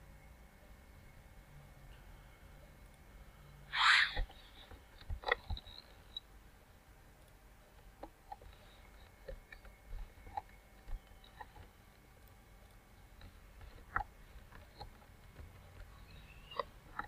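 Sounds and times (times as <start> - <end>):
faint steady hum: 0.0 - 17.0
burst of hiss: 3.7 - 4.2.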